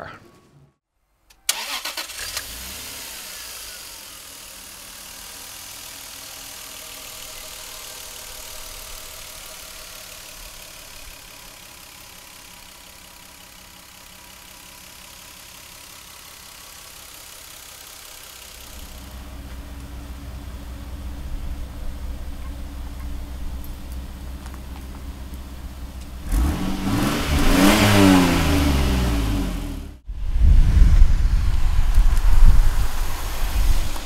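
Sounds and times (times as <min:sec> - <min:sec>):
engine sharp loud bursts: 0:01.5 - 0:11.3
engine idling: 0:01.5 - 0:30.1.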